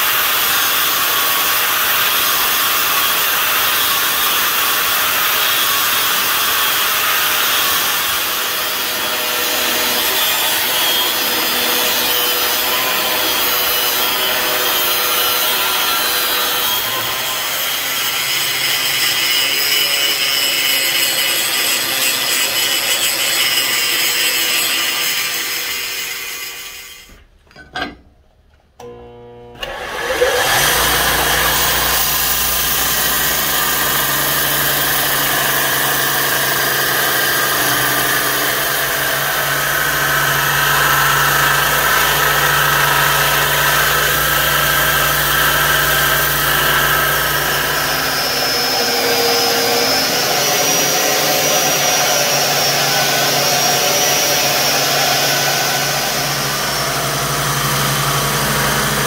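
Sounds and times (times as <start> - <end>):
steel grinding on belt: 2.2 - 27.1, 30.2 - 59.0
belt grinder motor humming: 28.8 - 59.0.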